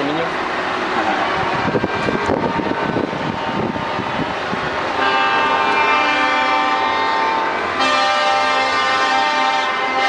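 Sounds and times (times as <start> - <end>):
truck air horn chord: 5.0 - 10.0.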